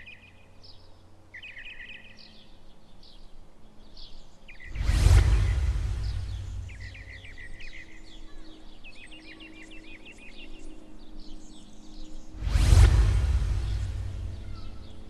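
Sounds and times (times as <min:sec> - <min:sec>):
birds chirping: 0:00.0 - 0:15.0
swoosh transition effect: 0:04.6 - 0:07.6, 0:12.3 - 0:15.0.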